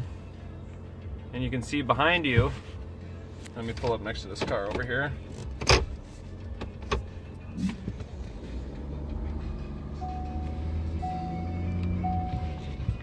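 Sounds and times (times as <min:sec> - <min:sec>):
diesel engine running low: 0:00.0 - 0:03.6, 0:06.0 - 0:13.0
warning chime: 0:10.0 - 0:12.8.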